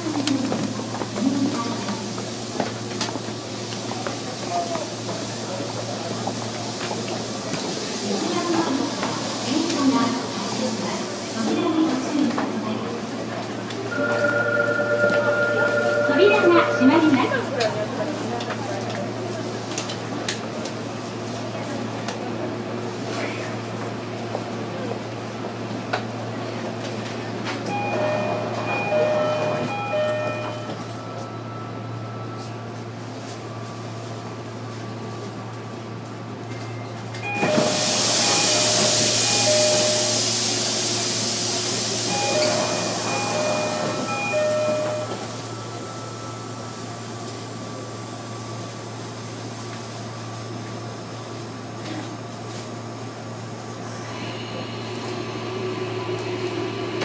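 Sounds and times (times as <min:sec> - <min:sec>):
electric train humming: 0:13.7 - 0:18.1, 0:27.6 - 0:36.4, 0:37.2 - 0:51.9.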